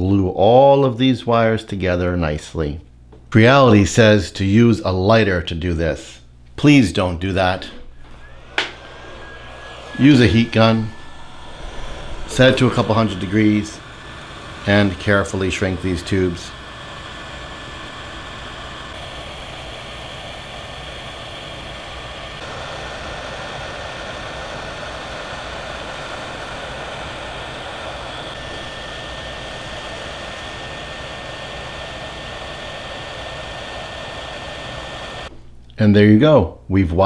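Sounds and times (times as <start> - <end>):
thin steady whine: 3.0 - 35.4
heat gun blowing hot air: 7.7 - 35.3.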